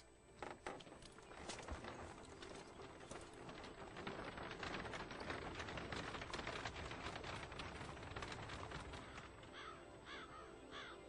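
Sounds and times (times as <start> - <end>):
horse hooves and buggy wheels: 0.0 - 10.3
crow cawing: 9.0 - 11.0.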